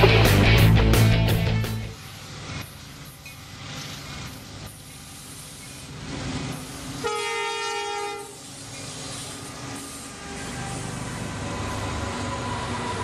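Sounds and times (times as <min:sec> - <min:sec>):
diesel locomotives rumbling past: 0:00.0 - 0:13.0
train horn blast: 0:07.0 - 0:08.4.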